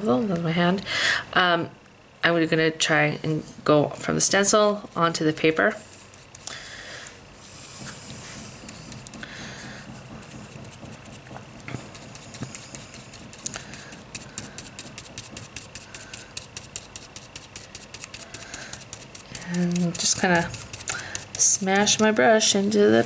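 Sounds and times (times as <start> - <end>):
brush strokes through stencil: 7.4 - 22.2
brush dabbing on paper: 7.4 - 23.0.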